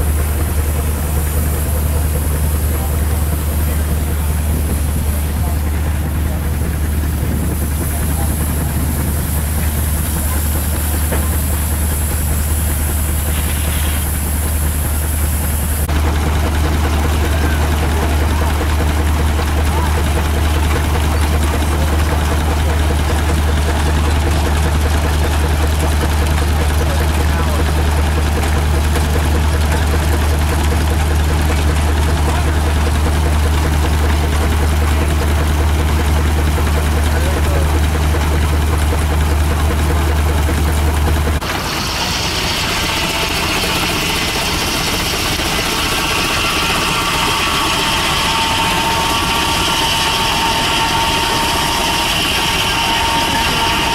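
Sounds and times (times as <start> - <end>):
steam hiss: 0.0 - 15.9, 41.4 - 53.9
steam engine low rumble: 0.0 - 53.9.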